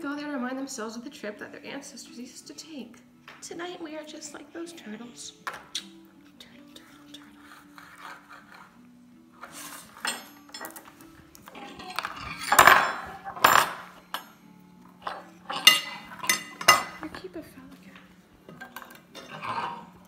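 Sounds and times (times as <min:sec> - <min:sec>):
dishes clattering: 0:09.4 - 0:14.4, 0:15.0 - 0:17.4, 0:18.4 - 0:20.0.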